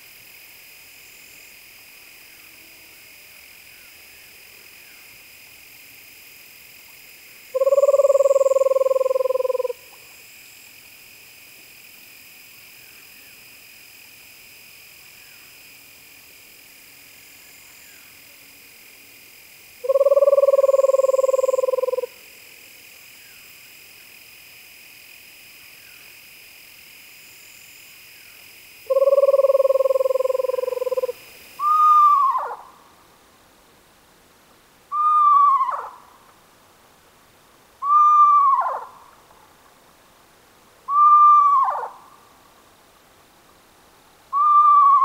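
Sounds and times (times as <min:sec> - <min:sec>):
screech owl trilling calls: 0:07.5 - 0:09.9, 0:19.8 - 0:22.2, 0:28.9 - 0:32.7, 0:34.9 - 0:36.0, 0:37.8 - 0:39.0, 0:40.9 - 0:42.1, 0:44.3 - 0:45.0.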